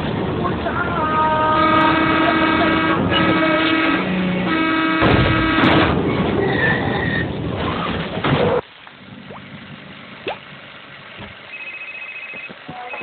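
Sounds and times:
rushing vehicle rumble: 0.0s - 11.6s
vehicle horn chord: 1.5s - 5.9s.

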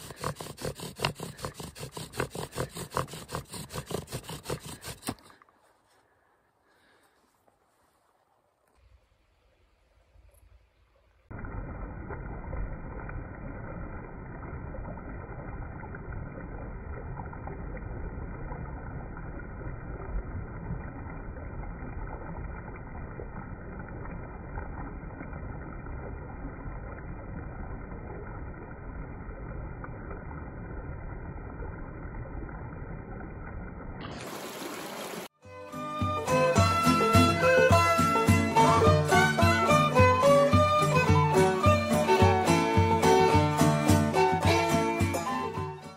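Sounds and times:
stream rushing over rocks: 34.0s - 35.3s
music: 35.4s - 45.9s.

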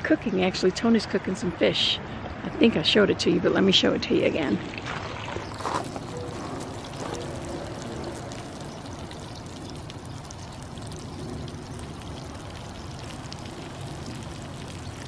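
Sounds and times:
fish sizzling in oil: 5.5s - 15.0s.

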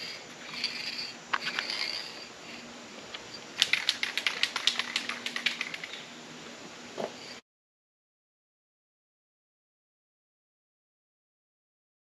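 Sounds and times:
spray can rattling when shaken: 3.6s - 6.0s.

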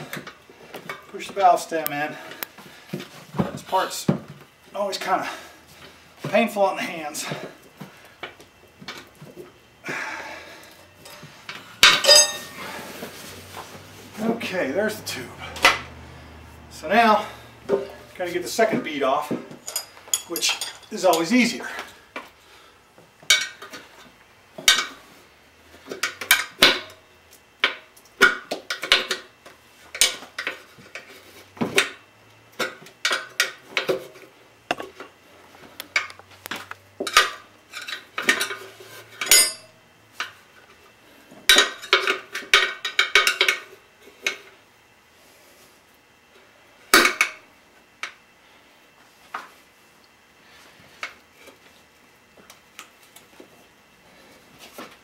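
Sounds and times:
tire irons clattering on metal rim: 11.8s - 12.9s.

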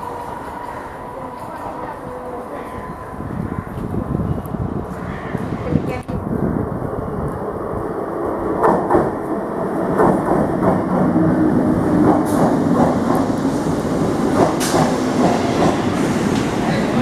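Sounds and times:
train wheels clicking over rail joints: 14.2s - 16.8s.

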